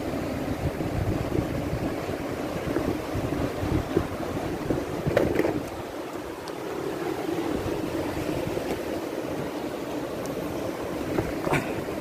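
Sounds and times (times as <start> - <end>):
wind buffeting microphone: 0.0 - 6.0
shallow surf at shore: 0.0 - 12.0.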